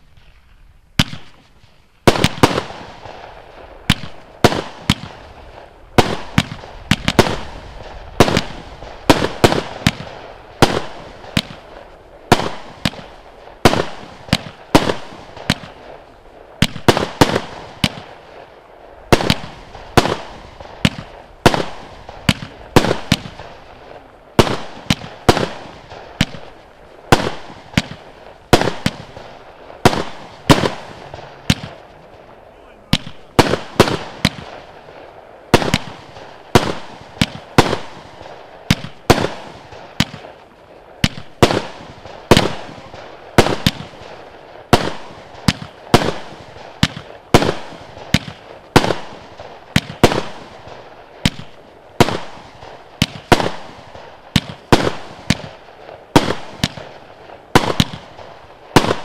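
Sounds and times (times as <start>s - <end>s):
firework cake bangs and pops: 1.0s - 18.5s, 19.1s - 31.9s, 32.9s - 59.0s.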